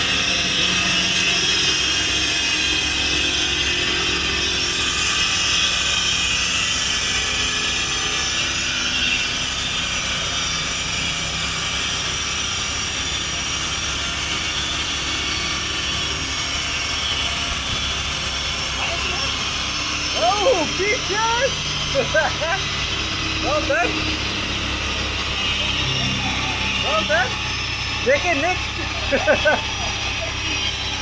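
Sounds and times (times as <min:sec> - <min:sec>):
low hum: 0:00.0 - 0:31.0.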